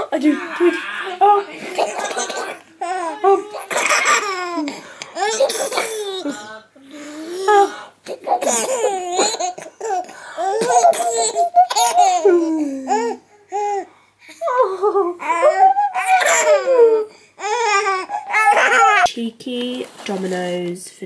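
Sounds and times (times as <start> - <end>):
baby giggling: 1.6 - 6.4, 7.2 - 19.1.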